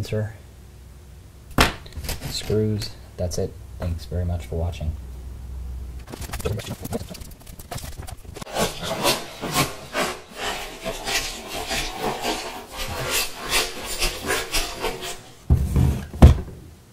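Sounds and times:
small parts rattling in cardboard box: 0:06.0 - 0:08.5.

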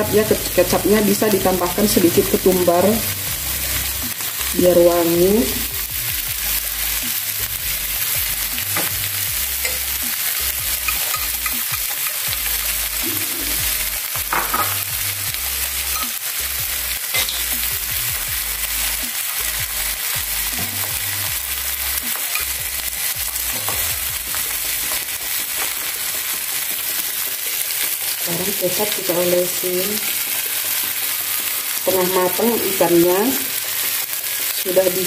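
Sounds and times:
fish sizzling in oil: 0:00.0 - 0:35.0.

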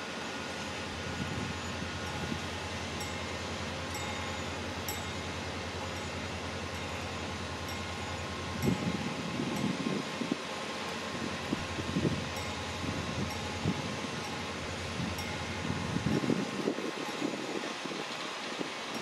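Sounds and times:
level crossing warning bell: 0:00.0 - 0:19.0
wind buffeting microphone: 0:00.9 - 0:05.4, 0:08.2 - 0:19.0.

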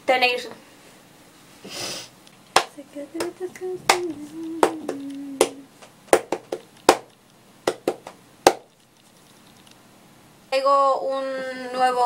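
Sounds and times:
faint low hum: 0:02.2 - 0:12.0
sharp clicks: 0:03.6 - 0:05.6.

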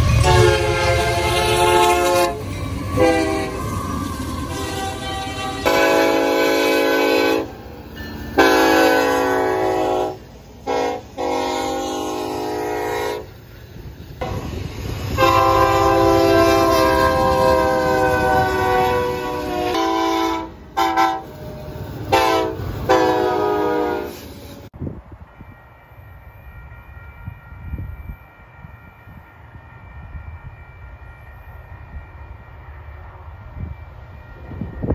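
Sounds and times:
locomotive horn blasts: 0:00.0 - 0:03.7, 0:04.4 - 0:07.6, 0:08.3 - 0:13.3, 0:15.2 - 0:21.4, 0:22.1 - 0:24.2
rumble of passing trains: 0:00.0 - 0:34.9.

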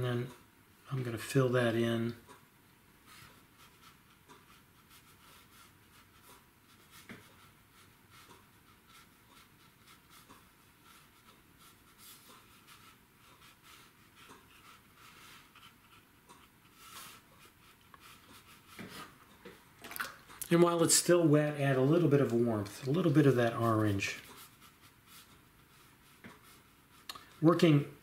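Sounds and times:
brush scratching on paper: 0:03.1 - 0:19.2, 0:20.6 - 0:27.7.

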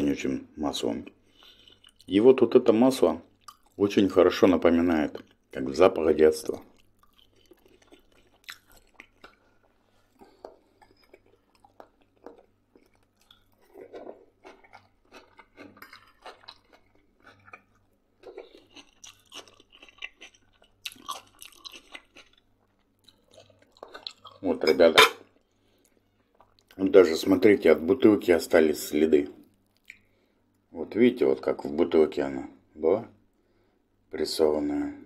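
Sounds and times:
person chewing food: 0:01.2 - 0:02.1, 0:03.3 - 0:03.8, 0:06.4 - 0:24.5, 0:25.3 - 0:26.8, 0:29.4 - 0:30.6.

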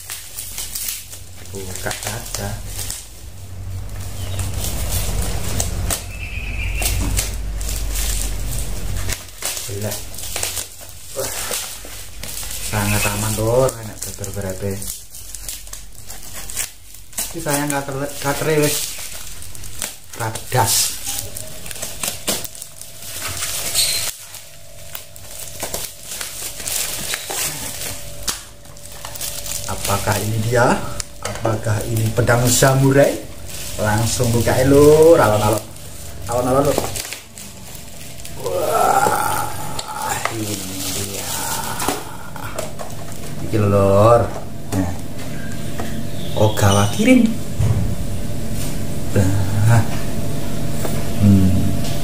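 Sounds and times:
packing tape ripping: 0:00.0 - 0:46.8
plastic wrapping crinkling: 0:00.0 - 0:51.2
tape peeling squeal: 0:03.9 - 0:09.2, 0:12.3 - 0:13.7, 0:20.8 - 0:24.4.

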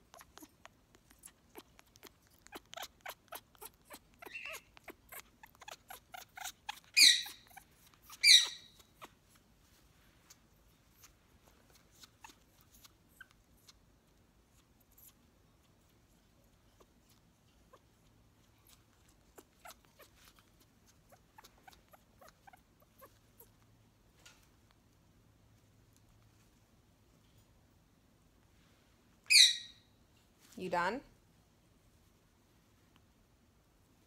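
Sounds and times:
parrot squawks: 0:02.5 - 0:08.9, 0:29.3 - 0:29.8.

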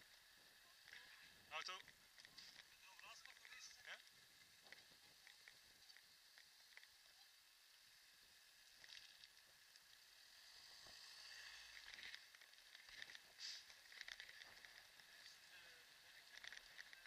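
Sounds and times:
scooter wheels rolling on pavement: 0:01.0 - 0:17.0
car passing: 0:09.9 - 0:13.6.

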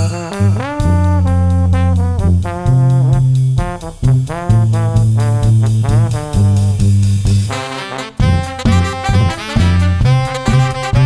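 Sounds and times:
brass band playing: 0:00.0 - 0:11.0
drum kit beat: 0:00.0 - 0:11.0
sousaphone bass line: 0:00.0 - 0:11.0.

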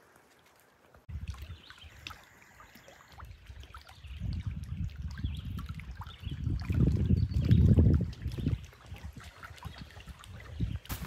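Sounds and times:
wind buffeting microphone: 0:01.1 - 0:02.1, 0:03.2 - 0:11.0.

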